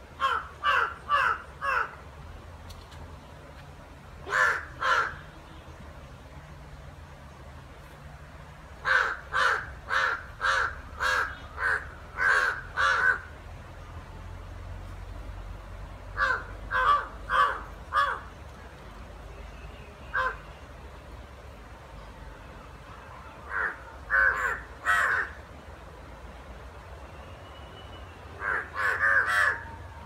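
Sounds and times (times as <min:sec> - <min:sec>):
crows cawing: 0:00.2 - 0:02.0, 0:04.3 - 0:05.2, 0:08.8 - 0:13.3, 0:16.2 - 0:18.3, 0:20.1 - 0:20.4, 0:23.5 - 0:25.4, 0:28.4 - 0:29.7.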